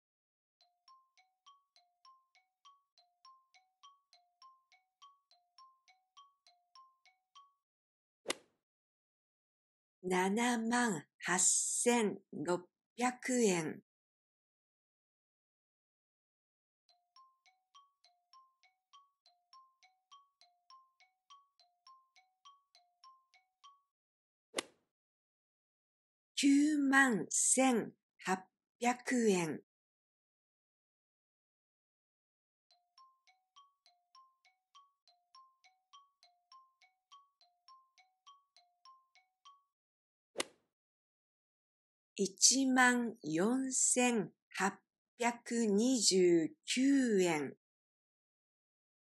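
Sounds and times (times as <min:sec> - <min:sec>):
ticking timer jingle: 0:00.6 - 0:07.7, 0:16.9 - 0:24.0, 0:32.7 - 0:39.8.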